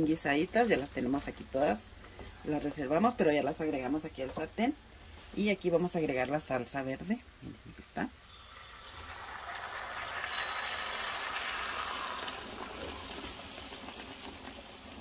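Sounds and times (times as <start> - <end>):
salsa splashing and sizzling in pan: 8.3 - 15.0.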